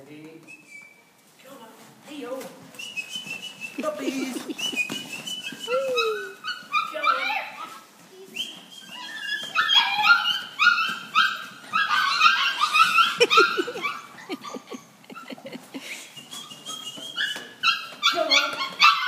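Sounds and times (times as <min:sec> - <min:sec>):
puppies yipping: 0:02.8 - 0:19.0.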